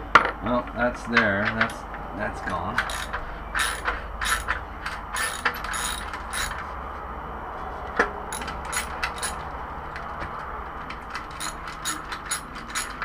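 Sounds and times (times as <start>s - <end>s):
socket ratchet clicking: 2.8s - 6.6s, 8.3s - 9.5s, 10.8s - 13.0s.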